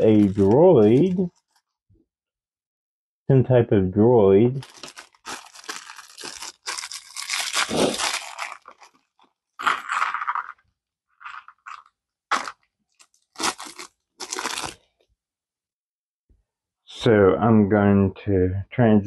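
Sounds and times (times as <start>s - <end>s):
plastic bag crinkling and tearing: 0.0s - 1.7s, 4.6s - 10.6s, 11.2s - 14.8s.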